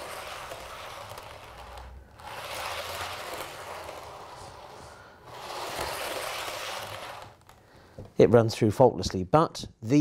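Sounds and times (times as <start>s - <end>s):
model train wheels rolling on rails: 0.0s - 7.6s.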